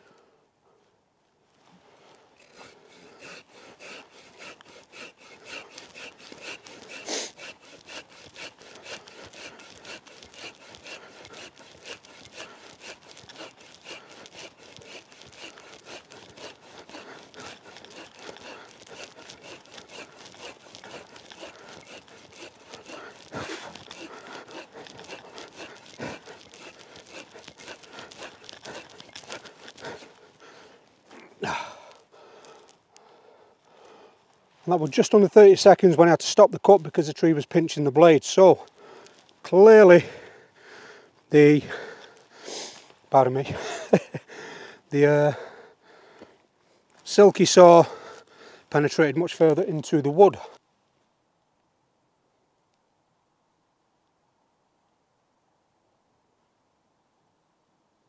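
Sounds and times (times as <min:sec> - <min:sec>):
saw cutting log: 0:02.1 - 0:32.7, 0:47.0 - 0:50.6.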